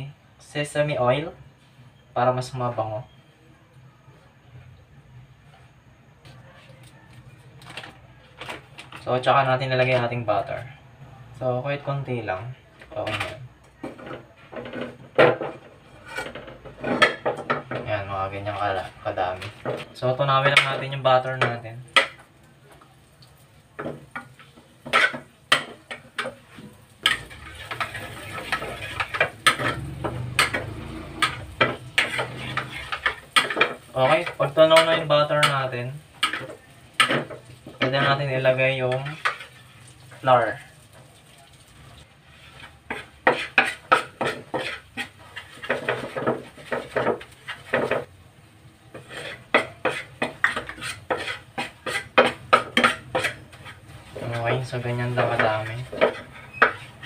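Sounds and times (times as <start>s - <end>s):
butter sizzling: 12.4s - 57.0s
metal spoon scraping frying pan: 12.9s - 22.2s, 23.8s - 41.1s, 42.2s - 48.1s, 48.9s - 57.0s.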